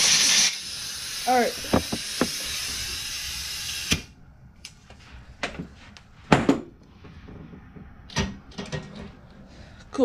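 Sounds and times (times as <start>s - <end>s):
air hose knocks and clunks: 1.6s - 2.6s, 6.3s - 9.1s.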